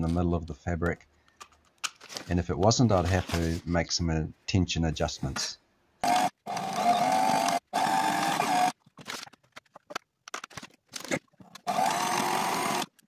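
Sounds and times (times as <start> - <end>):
sewing machine stitching: 6.0 - 8.8, 11.0 - 13.0.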